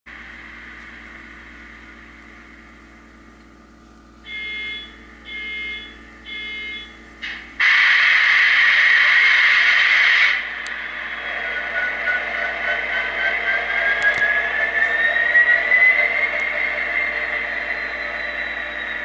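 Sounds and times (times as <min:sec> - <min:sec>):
faint steady hum: 0:00.1 - 0:19.0
model train air horn toots: 0:07.6 - 0:10.5.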